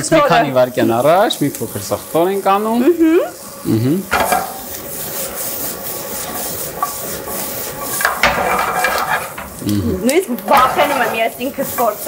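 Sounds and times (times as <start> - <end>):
vegetables frying in a pan: 0.0 - 12.0
pan knock: 4.1 - 4.7, 8.0 - 9.6
utensil scraping and clinking in pan: 4.1 - 12.0.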